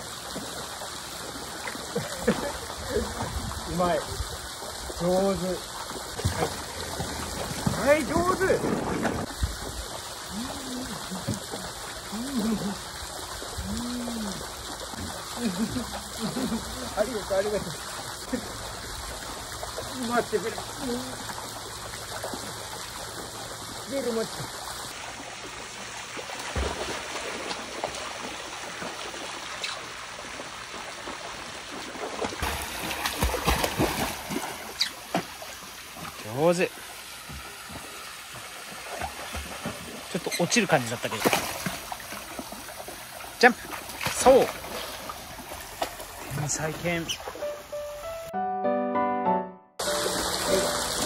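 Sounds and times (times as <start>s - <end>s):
pool water sloshing and trickling: 0.0s - 47.8s, 49.8s - 51.0s
dog paddling splashes: 4.7s - 13.7s, 14.7s - 47.4s
person humming low notes: 13.6s - 15.8s.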